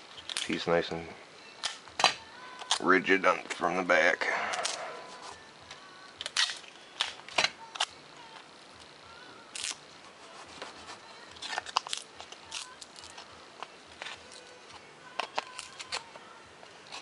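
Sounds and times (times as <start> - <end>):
tape crackling and rustling: 0.0 - 0.9, 1.6 - 3.6, 4.5 - 17.0.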